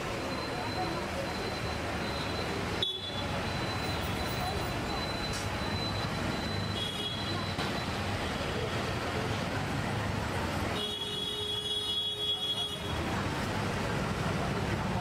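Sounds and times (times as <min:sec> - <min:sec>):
murmur of voices: 0:00.0 - 0:10.8
traffic rumble: 0:00.0 - 0:15.0.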